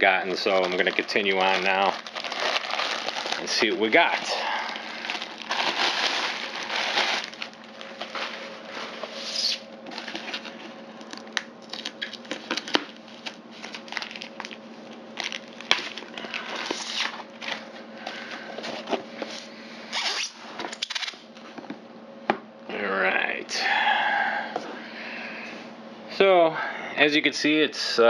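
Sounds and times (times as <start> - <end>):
plastic bag crinkling: 0.2 - 17.7
sharp plastic crackles: 0.3 - 8.4, 9.3 - 18.2.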